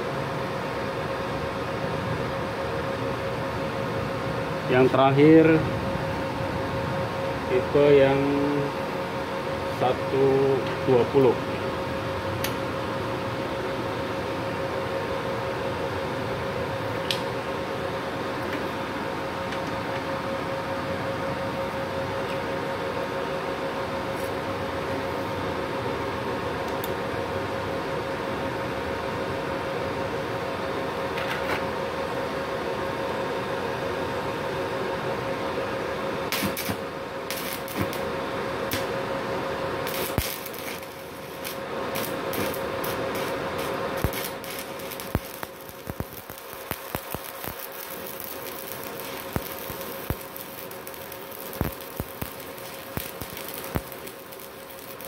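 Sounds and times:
welding crackles and pops: 36.3 - 39.0, 39.8 - 55.0
welding arc hissing: 36.3 - 55.0.

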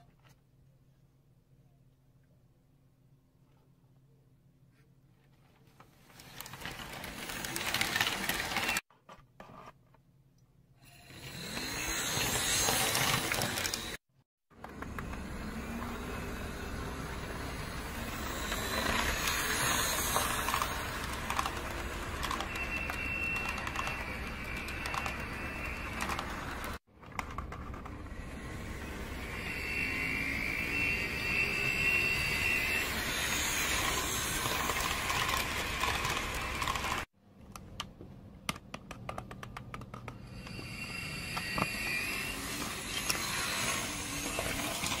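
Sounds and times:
small electric motor running: 10.9 - 14.0, 15.1 - 26.8, 28.2 - 37.1
high whine: 14.8 - 26.8, 28.0 - 37.0.

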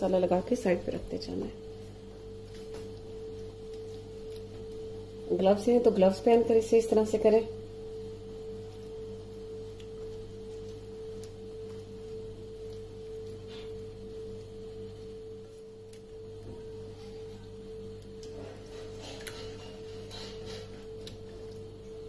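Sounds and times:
steady humming tone: 0.0 - 22.0.

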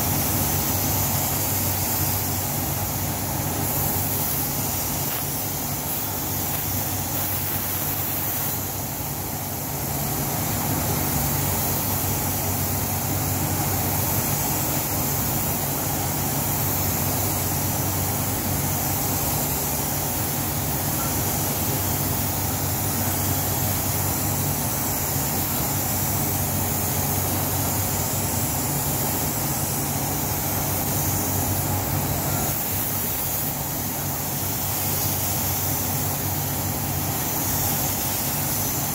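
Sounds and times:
spray gun hissing: 0.0 - 38.9
ventilation fans humming: 0.0 - 38.9.

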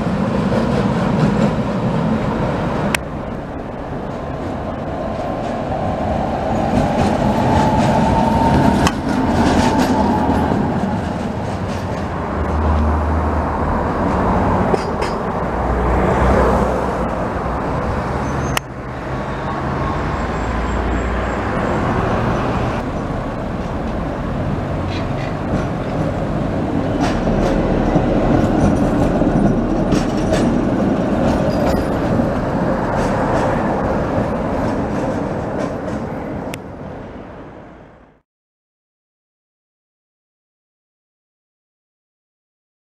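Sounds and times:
tram wheels rumbling: 0.0 - 38.2
wheels clicking over rail joints: 2.9 - 12.9, 13.9 - 15.5, 22.8 - 36.7.

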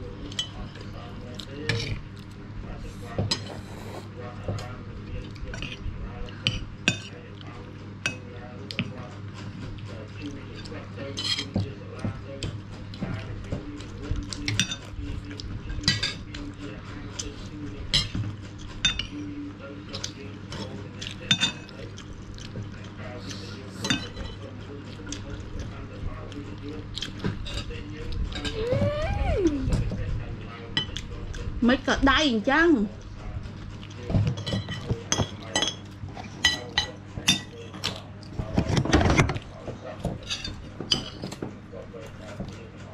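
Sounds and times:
cutlery clinking on plates: 10.5 - 11.7, 14.3 - 15.0, 23.8 - 24.4, 34.1 - 38.0, 40.0 - 41.5.

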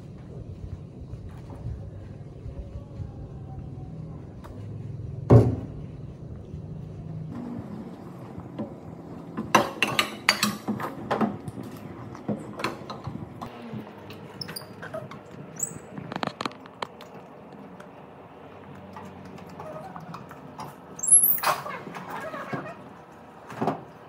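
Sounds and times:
dishes clattering on steel table: 9.5 - 11.0
brief high squeaks: 14.4 - 16.4, 21.0 - 22.8.

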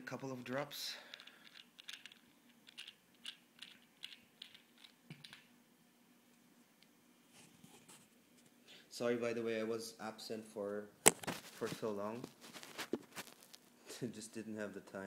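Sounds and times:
small objects clicking on tabletop: 1.1 - 5.5.

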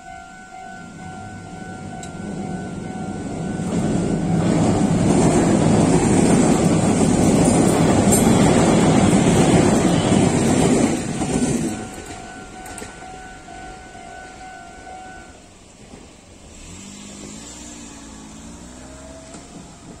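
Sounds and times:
crossing warning bell ringing: 0.0 - 15.9, 17.8 - 20.0
train rumbling over crossing: 0.0 - 20.0
car engine pulling away: 16.2 - 20.0.

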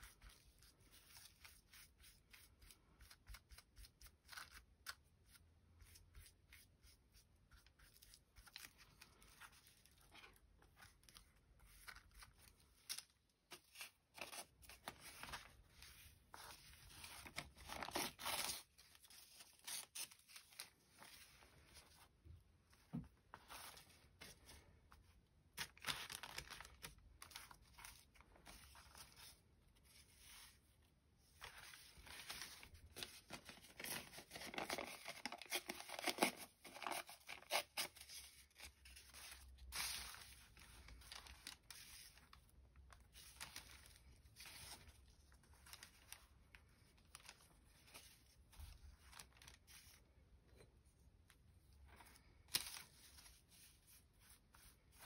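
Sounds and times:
paper rustling and ripping: 7.5 - 22.0, 25.6 - 30.6, 31.2 - 50.0, 52.0 - 55.0.

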